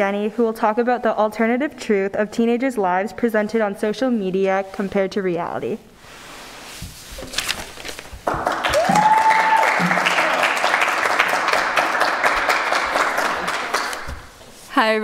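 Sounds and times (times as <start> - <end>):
audience applause: 8.3 - 14.1
high whooping cheer: 8.5 - 11.6.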